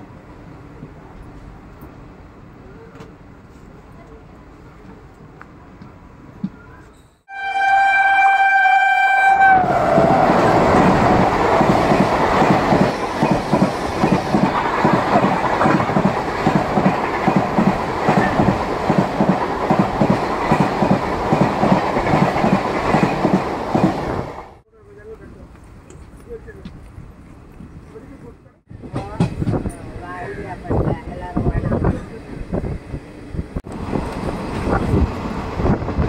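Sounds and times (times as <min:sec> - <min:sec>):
train horn: 0:07.3 - 0:10.4
train wheels clickety-clack: 0:09.9 - 0:24.5, 0:28.8 - 0:29.8.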